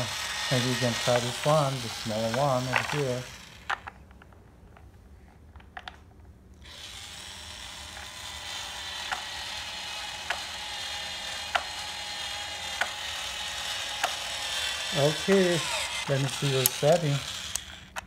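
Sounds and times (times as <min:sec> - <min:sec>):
toy power drill motor whir: 0:00.0 - 0:03.9, 0:06.6 - 0:18.0
sharp click of drill bit: 0:15.2 - 0:18.0.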